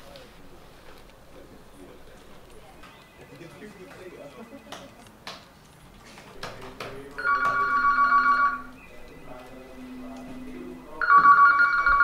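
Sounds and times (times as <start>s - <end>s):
electronic phone ringtone trilling: 7.2s - 8.9s, 11.0s - 12.0s.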